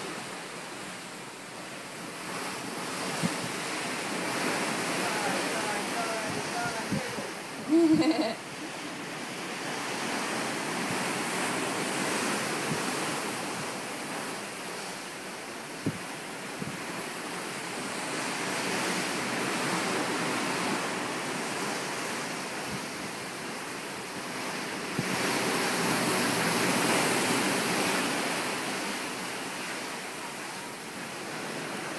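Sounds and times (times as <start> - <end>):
ocean waves washing: 0.0 - 31.9
wind buffeting microphone: 2.3 - 14.2, 15.8 - 17.0.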